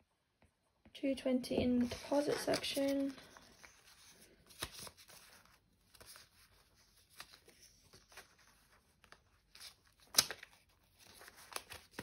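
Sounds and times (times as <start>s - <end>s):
banknotes flicking and rustling: 1.8s - 3.9s.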